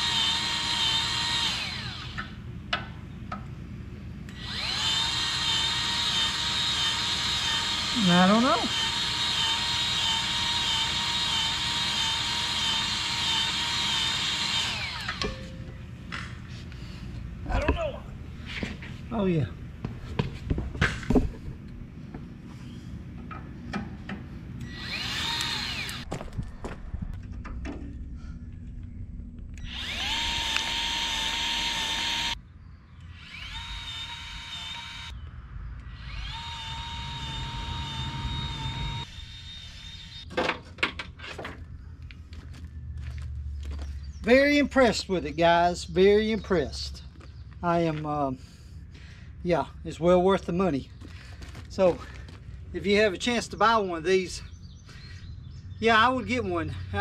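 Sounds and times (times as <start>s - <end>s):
grease gun motor whining: 0.0s - 2.4s, 4.3s - 15.2s, 24.6s - 26.1s, 29.6s - 32.4s, 33.0s - 35.2s, 35.8s - 40.3s.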